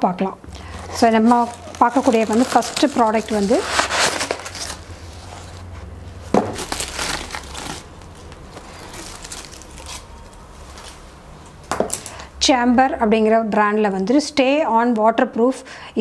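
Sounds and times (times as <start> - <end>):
paper packing wrap crinkling: 0.5 - 11.2.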